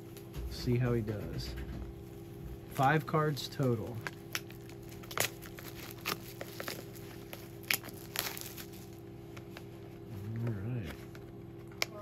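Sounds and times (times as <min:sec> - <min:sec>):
steady low hum: 0:00.0 - 0:12.0
cardboard box crinkling: 0:04.0 - 0:09.0.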